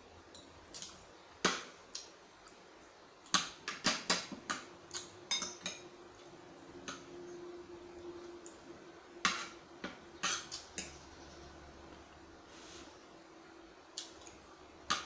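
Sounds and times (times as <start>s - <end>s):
cutlery clinking against a plate: 3.3s - 5.9s, 9.2s - 11.0s.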